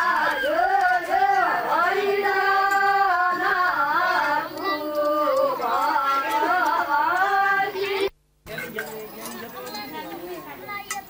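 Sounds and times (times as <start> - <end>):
women singing folk song: 0.0 - 8.1.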